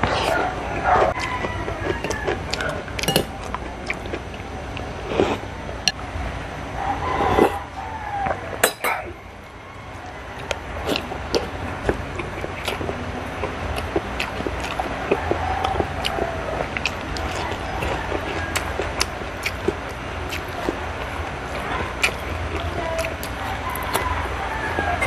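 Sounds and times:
chewing crunchy food: 0.0s - 5.6s, 9.9s - 25.0s
spoon clinking: 3.0s - 3.3s, 8.6s - 9.1s
lip smacks: 10.0s - 25.0s.

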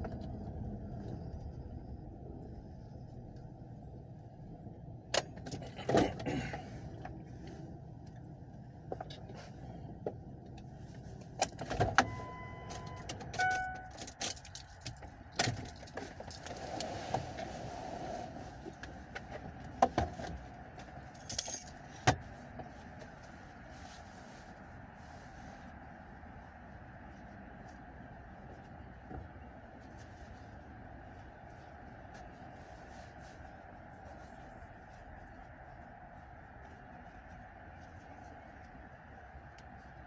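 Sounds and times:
car electronic warning chime: 12.0s - 14.2s
keys jangling: 12.6s - 16.7s, 21.1s - 21.8s.

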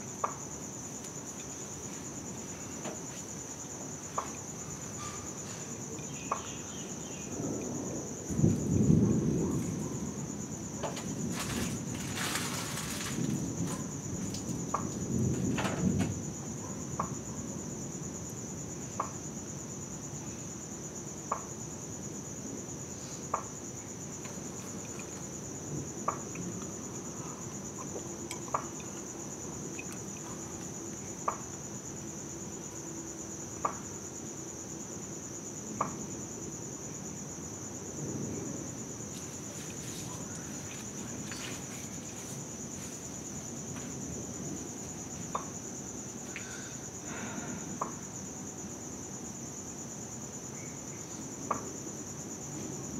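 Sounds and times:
insects trilling: 0.0s - 52.9s
distant thunder rumble: 5.0s - 17.9s.

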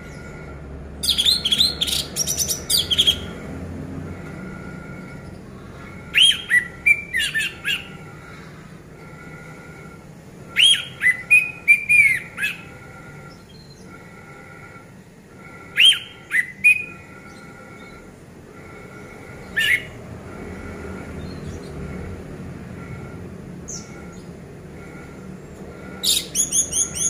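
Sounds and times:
thrush singing whistled notes: 6.0s - 8.3s, 9.0s - 14.7s, 15.4s - 18.1s.

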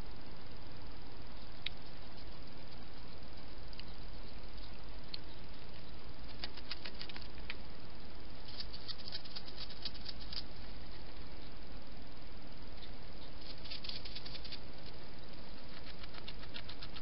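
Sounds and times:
steady hiss: 0.0s - 17.0s
hedgehog clicks and crackles: 5.1s - 7.6s, 8.5s - 10.5s, 13.4s - 15.0s, 15.6s - 17.0s.

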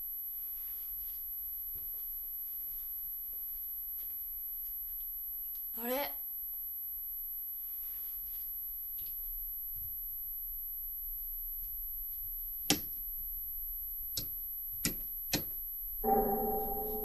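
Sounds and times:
low steady hum: 16.0s - 17.0s.

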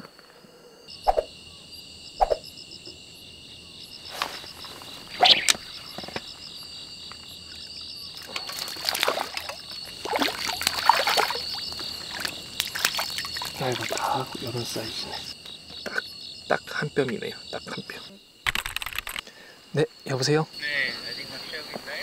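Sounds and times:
crickets chirring: 0.0s - 22.0s
splashy handling sounds: 8.2s - 14.5s.

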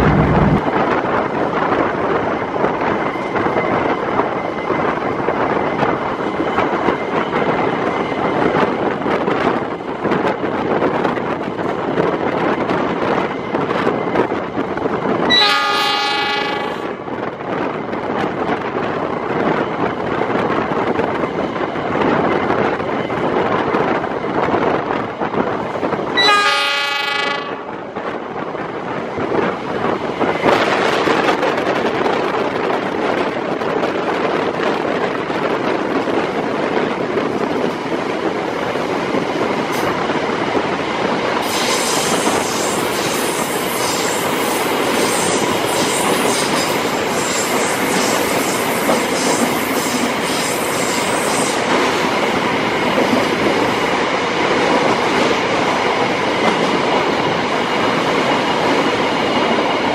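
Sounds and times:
train rumbling and clattering on rails: 0.0s - 59.9s
train horn: 15.3s - 17.0s, 26.2s - 27.8s.

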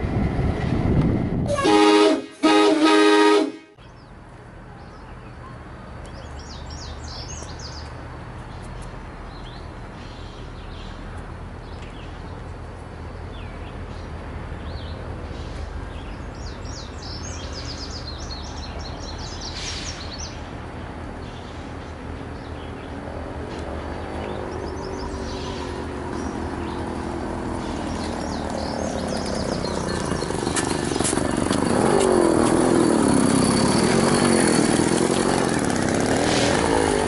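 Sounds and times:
train horn blast: 1.4s - 3.8s
small birds chirping: 15.9s - 20.5s, 24.0s - 31.3s.

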